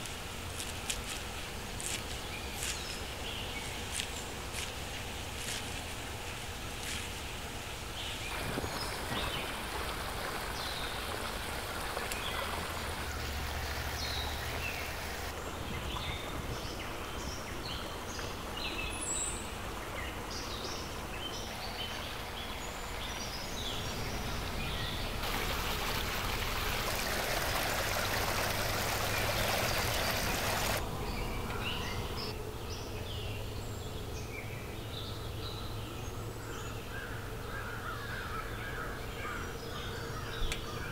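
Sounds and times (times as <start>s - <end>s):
flowing stream water: 0.0s - 32.4s
small birds chirping: 0.0s - 37.0s.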